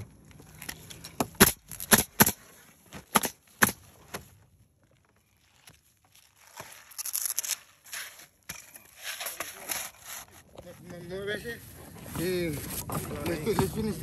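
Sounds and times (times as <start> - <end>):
rough scraping rustling: 0.0 - 14.0.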